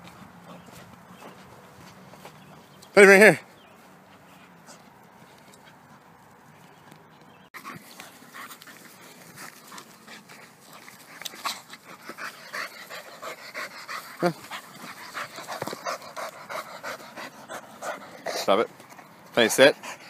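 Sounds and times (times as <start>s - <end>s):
dog panting: 0.0s - 2.8s, 7.6s - 20.0s.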